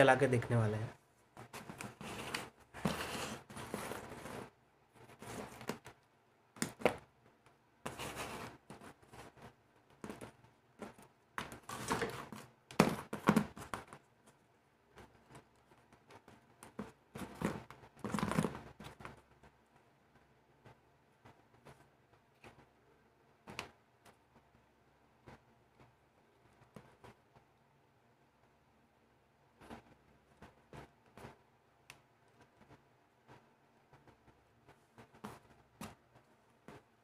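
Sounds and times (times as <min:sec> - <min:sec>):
hands rustling wires on cardboard: 0:01.3 - 0:19.9.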